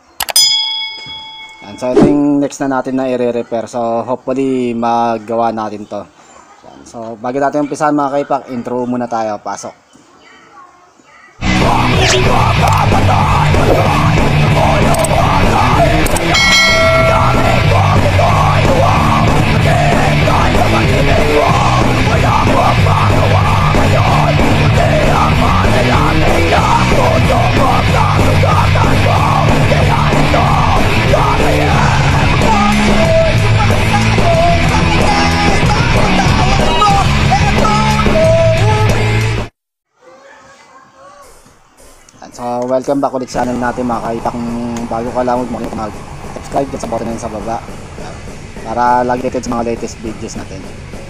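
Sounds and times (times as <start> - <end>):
rock music with electric guitar: 11.4 - 39.5.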